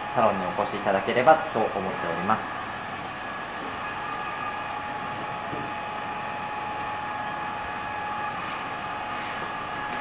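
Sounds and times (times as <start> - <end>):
mechanical hum and hiss: 0.0 - 10.0.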